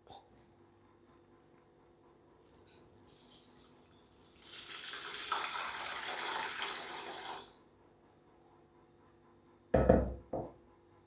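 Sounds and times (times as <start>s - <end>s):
water pouring onto beans: 3.1s - 7.6s.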